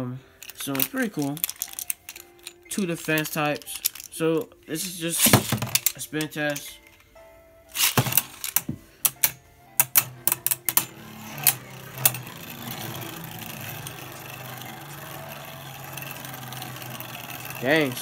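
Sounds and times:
spinning tops whirring: 0.4 - 4.2, 9.8 - 18.0
spinning tops clacking together: 0.4 - 4.5, 5.1 - 7.0, 7.8 - 18.0.

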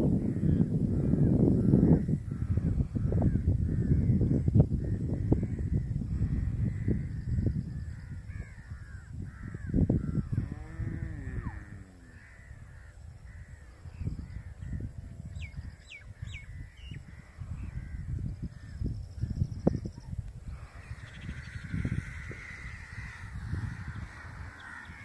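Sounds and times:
crows cawing: 7.9 - 14.6, 20.6 - 25.0
low rumbling noise: 9.9 - 15.2.

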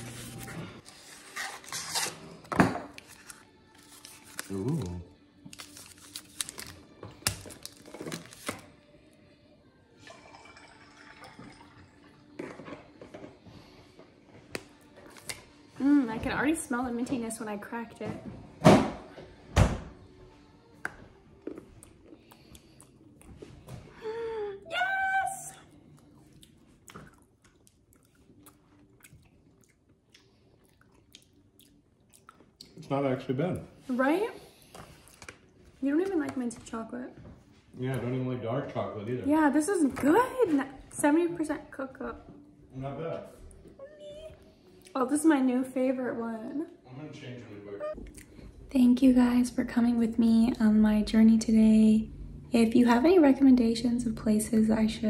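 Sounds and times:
wrapper crinkling: 3.0 - 8.7
chocolate snapping: 4.3 - 8.6
chewing crunchy chocolate: 21.4 - 23.4, 25.8 - 32.8.

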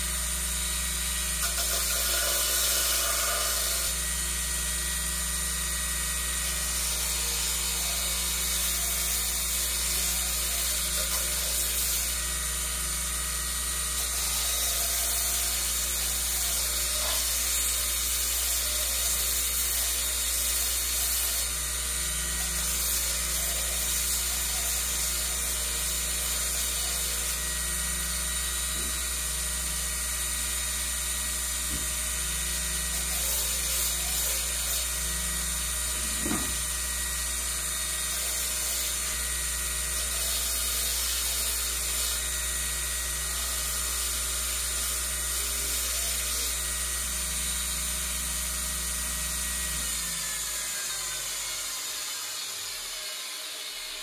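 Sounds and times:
belt sander motor whine: 34.0 - 38.1.

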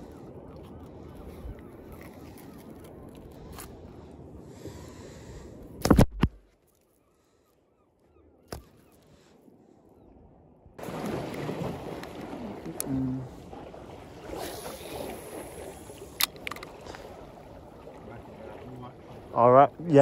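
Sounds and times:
wind and water hiss: 0.0 - 5.9, 10.8 - 20.0
rush of wind and water: 0.0 - 6.4, 8.5 - 20.0.

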